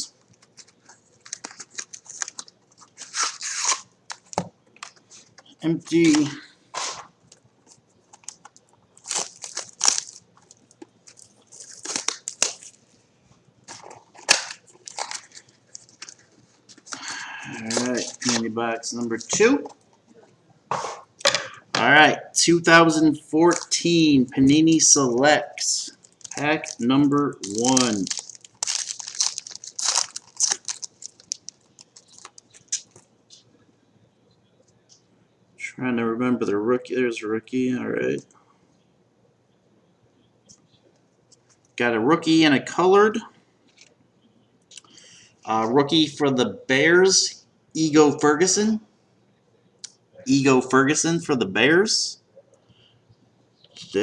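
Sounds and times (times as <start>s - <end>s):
plastic wrapper tearing and crinkling: 0.3s - 5.0s, 7.7s - 12.9s, 13.7s - 17.0s, 17.6s - 18.5s, 25.9s - 33.1s
cardboard and foil packs rustling: 0.3s - 5.3s, 7.7s - 13.0s, 13.7s - 19.7s, 25.8s - 33.1s.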